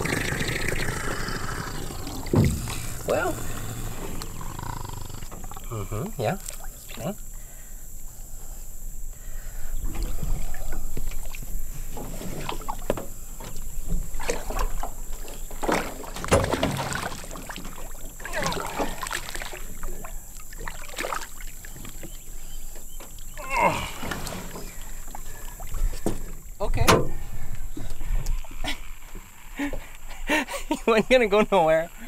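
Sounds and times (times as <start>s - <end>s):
water splashing against boat: 0.0s - 4.5s, 5.1s - 7.2s, 9.8s - 29.7s
knocks against the hull: 2.3s - 3.0s, 12.0s - 18.9s, 25.9s - 27.5s.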